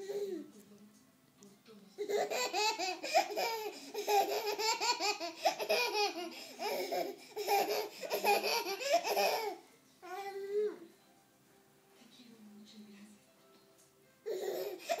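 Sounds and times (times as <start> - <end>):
baby giggling: 2.0 - 9.6.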